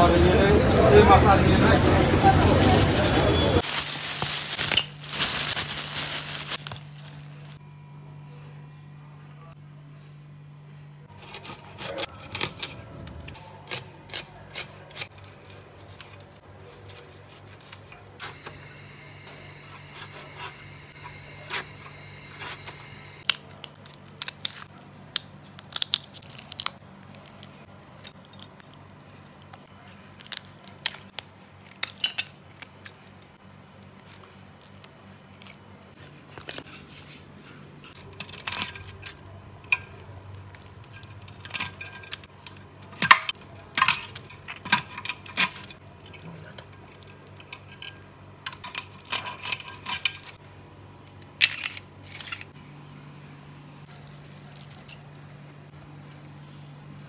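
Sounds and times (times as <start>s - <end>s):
low steady hum: 0.0s - 57.0s
plastic bag rustling: 1.7s - 7.6s
knife and scissors snipping: 11.1s - 12.7s, 13.3s - 18.4s.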